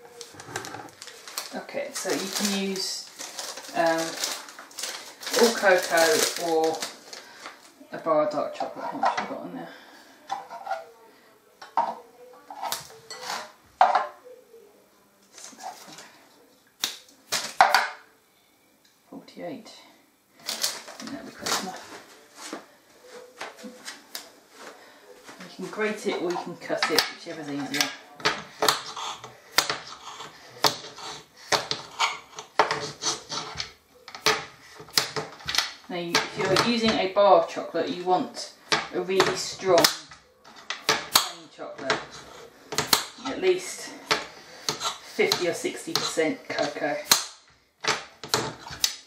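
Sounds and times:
paper and foil crinkling: 0.0s - 7.8s, 15.2s - 16.3s, 16.9s - 17.7s, 20.4s - 36.9s
knife scraping: 28.6s - 33.8s, 44.0s - 46.8s.

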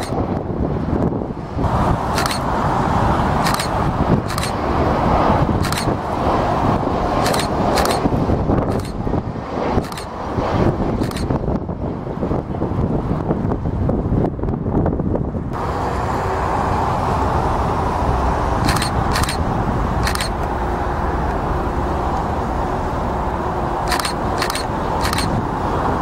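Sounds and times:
distant jet engines rumbling: 0.0s - 26.0s
wind on microphone: 0.0s - 26.0s
short clicks: 2.1s - 2.5s, 3.4s - 4.6s, 5.6s - 6.0s, 7.2s - 8.1s, 8.7s - 9.0s, 9.8s - 10.1s, 11.0s - 11.3s, 18.6s - 19.4s, 20.0s - 20.5s, 23.9s - 25.4s.

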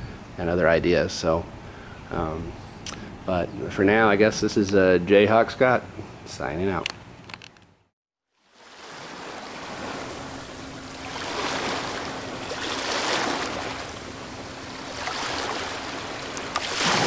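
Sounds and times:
rushing ocean water: 8.4s - 17.0s.

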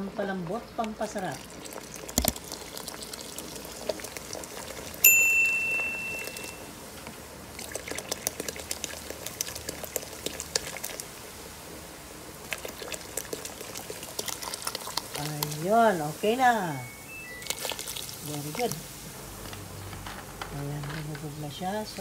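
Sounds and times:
soda fizzing and crackling: 0.2s - 20.1s
soda pouring into broth: 1.1s - 16.1s, 17.0s - 19.0s
high ding: 5.0s - 6.7s, 16.8s - 17.5s.

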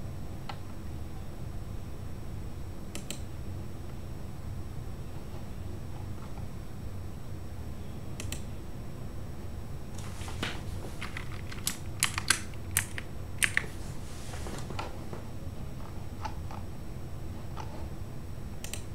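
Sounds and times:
steady low hum: 0.0s - 18.9s
computer keyboard typing: 11.0s - 13.7s.

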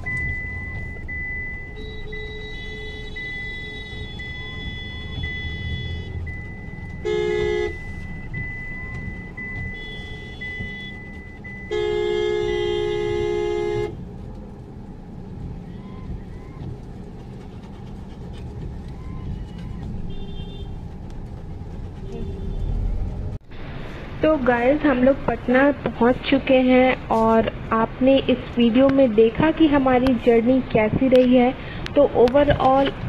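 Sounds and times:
car engine rumble and road noise: 0.0s - 33.0s
car horn: 1.6s - 8.2s, 8.8s - 14.0s, 19.0s - 20.8s, 22.0s - 22.9s.

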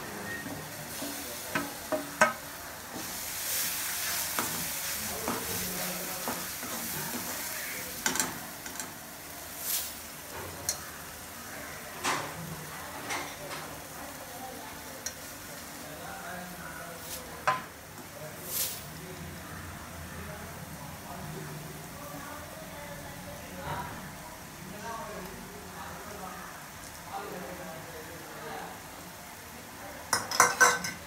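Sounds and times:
masala sizzling in pan: 0.0s - 31.0s
metal ladle clinking: 30.2s - 31.0s.

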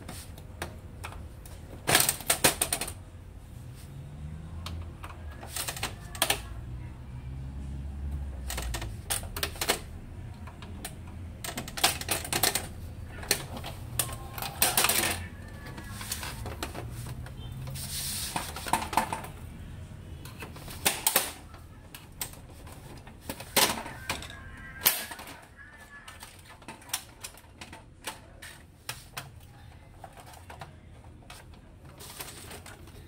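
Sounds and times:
printer parts clicking and clattering: 0.0s - 3.1s, 4.6s - 6.6s, 8.3s - 19.5s, 20.2s - 33.0s
scraping rubs: 15.1s - 18.9s.

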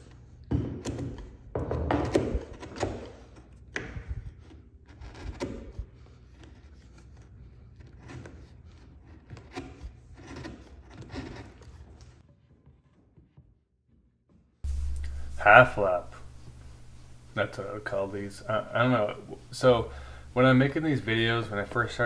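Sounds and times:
chisel splitting wood: 0.0s - 12.2s.

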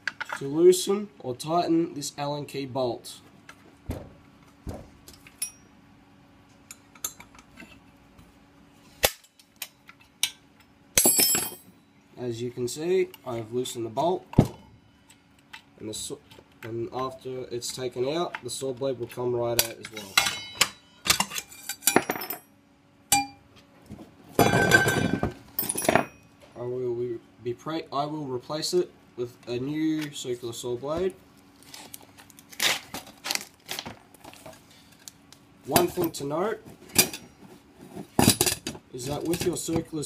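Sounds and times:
metal parts clinking: 11.0s - 11.7s, 24.5s - 26.2s.

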